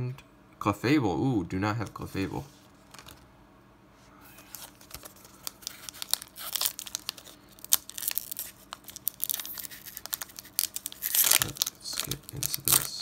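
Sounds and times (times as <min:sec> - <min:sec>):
foil wrapper crinkling and tearing: 0:04.4 - 0:13.0.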